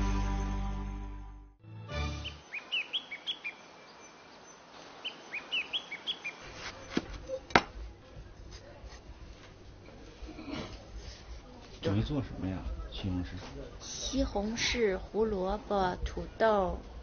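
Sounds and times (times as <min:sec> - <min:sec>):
small birds chirping: 0:02.2 - 0:07.5.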